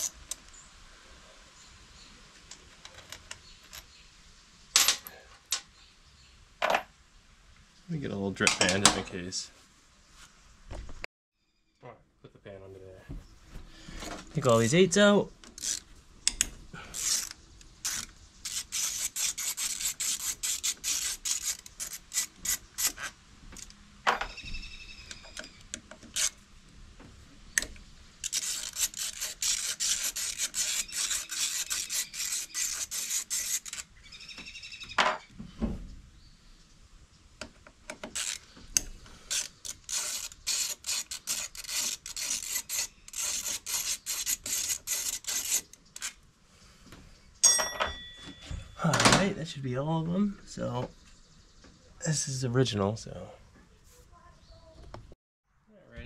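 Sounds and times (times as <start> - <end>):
hand ratchet clicking: 15.6 - 23.1, 28.2 - 33.9, 37.9 - 38.4, 39.3 - 46.2.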